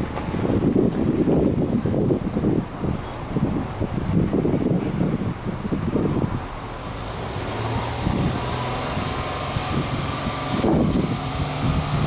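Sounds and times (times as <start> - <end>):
car engine idling: 6.2 - 12.0.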